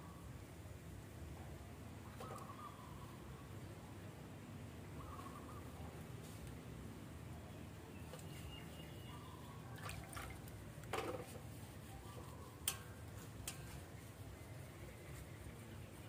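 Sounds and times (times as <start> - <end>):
water dripping and splashing: 9.7 - 11.0.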